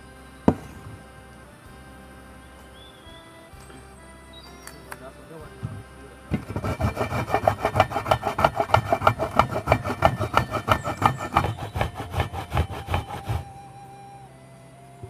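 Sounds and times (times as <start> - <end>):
coconut rasped on metal grater: 6.3 - 13.5.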